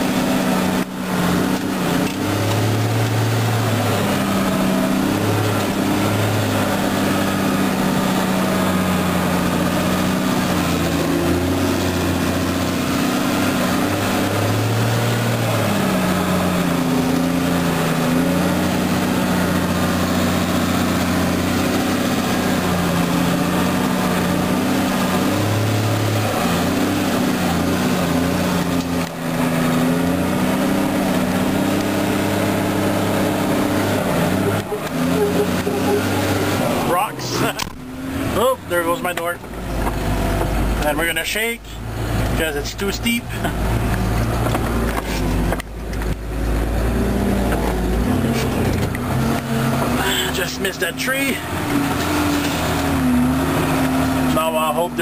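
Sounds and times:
tractor engine under load: 0.0 - 55.0.

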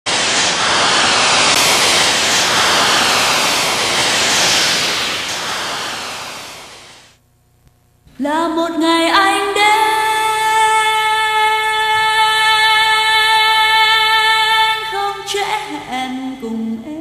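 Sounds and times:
loud hiss-like rushing noise: 0.0 - 7.2.

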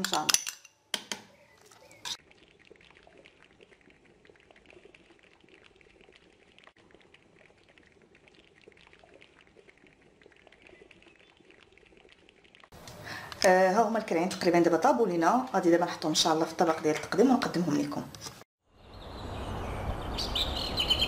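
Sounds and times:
stew bubbling and popping: 0.0 - 18.4.

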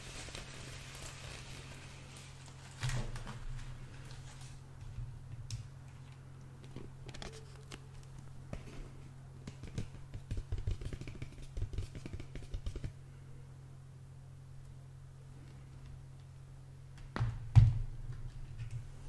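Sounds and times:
plastic packaging handled: 0.0 - 4.7, 5.9 - 8.3
steady low hum: 0.0 - 19.0
fingertips tapping plastic: 9.4 - 12.9.

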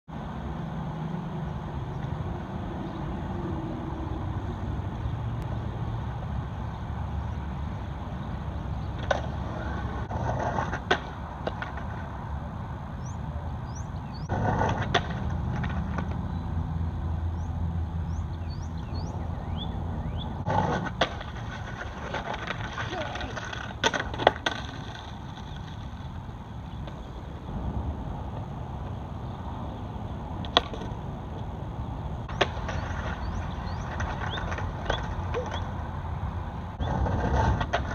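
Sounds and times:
road traffic rumble: 0.1 - 37.9
skateboard clacks: 8.9 - 12.2, 14.2 - 16.3, 20.4 - 27.2, 30.4 - 31.5, 32.2 - 36.0, 36.8 - 37.9.

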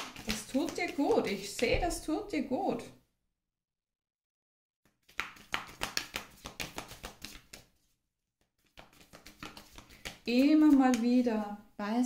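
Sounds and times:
cards being shuffled: 0.0 - 1.7, 5.0 - 7.9, 8.5 - 11.1.

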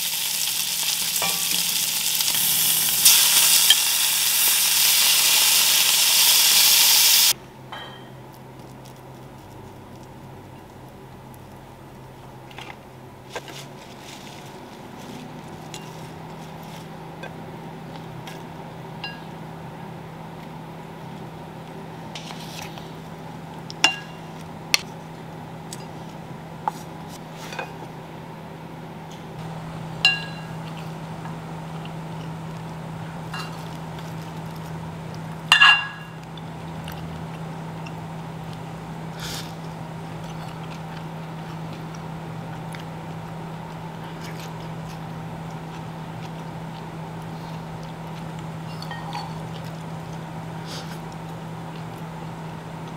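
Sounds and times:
faint steady hum: 0.0 - 52.9
ceramic bowls and utensils clinking: 7.8 - 8.2, 30.0 - 30.8, 35.5 - 36.2, 48.7 - 49.6.

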